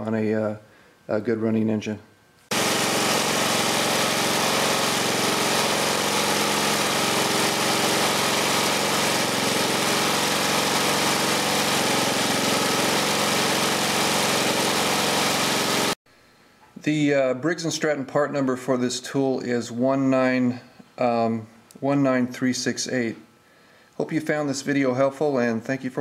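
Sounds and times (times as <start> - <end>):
lawn mower engine running: 2.5 - 16.0.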